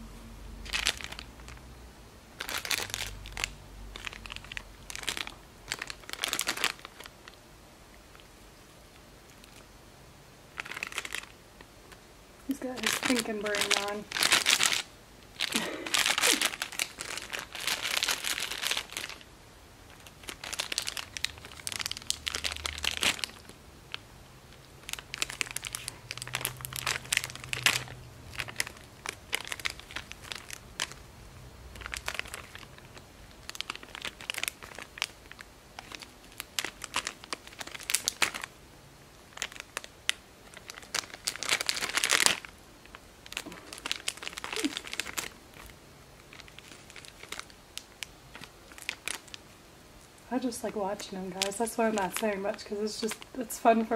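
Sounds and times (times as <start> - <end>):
plastic wrapper crinkling: 0.6 - 1.7, 2.3 - 9.7, 10.5 - 53.9.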